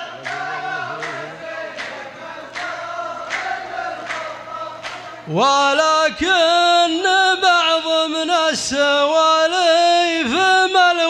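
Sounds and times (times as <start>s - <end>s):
men chanting in unison: 0.0s - 11.0s
sharp hand claps: 0.2s - 5.2s.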